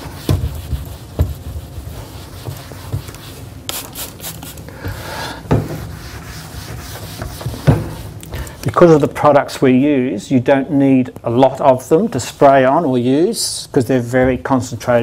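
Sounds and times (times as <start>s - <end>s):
cloth wiping cupboard doors: 0.0s - 8.2s
spray bottle squirts: 3.7s - 4.6s.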